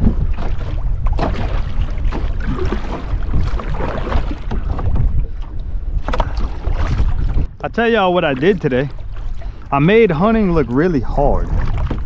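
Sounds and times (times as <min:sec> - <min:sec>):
knocks and splashes: 0:00.0 - 0:07.5, 0:10.2 - 0:12.0
wind buffeting microphone: 0:00.0 - 0:12.0.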